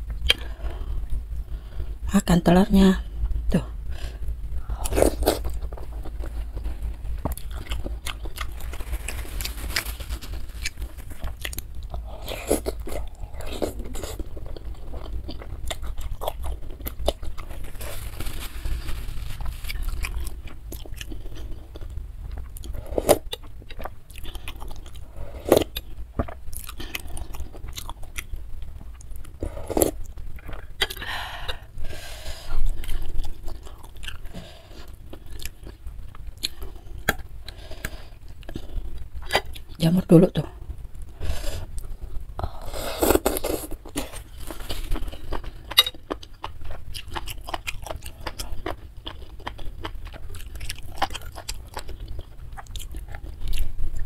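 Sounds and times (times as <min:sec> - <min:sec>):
low hum: 0:00.0 - 0:39.3
close chewing of noodles: 0:04.6 - 0:28.3, 0:28.9 - 0:39.8, 0:41.2 - 0:54.0.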